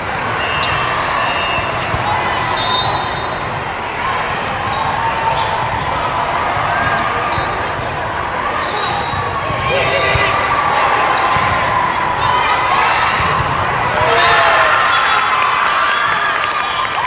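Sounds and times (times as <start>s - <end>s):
sneakers squeaking on floor: 0.0s - 3.6s, 4.2s - 14.4s
voices: 0.4s - 14.7s
ball bouncing on court: 0.6s - 3.6s, 4.2s - 14.3s.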